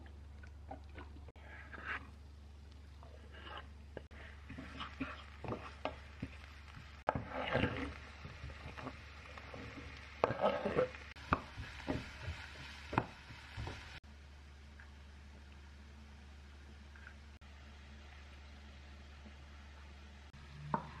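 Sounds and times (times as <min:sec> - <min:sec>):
wooden spatula scraping frying pan: 0:01.4 - 0:02.1, 0:03.1 - 0:14.0.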